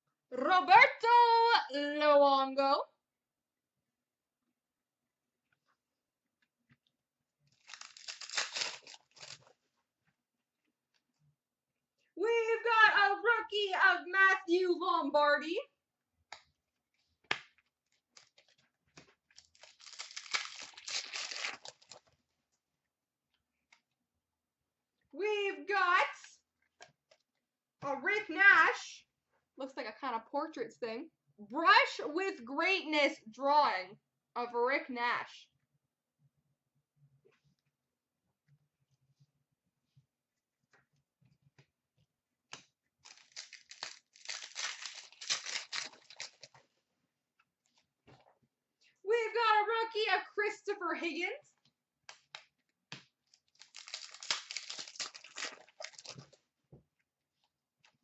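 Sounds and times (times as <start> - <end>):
wrapper crinkling and tearing: 7.5 - 9.5, 17.9 - 18.6, 19.3 - 22.1, 43.0 - 46.6, 53.2 - 56.4.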